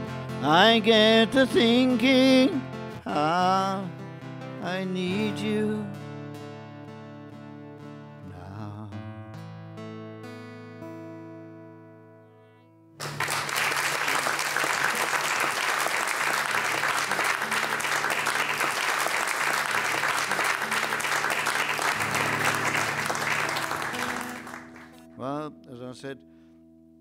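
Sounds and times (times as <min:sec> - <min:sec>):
audience applauding: 0:13.0 - 0:25.0.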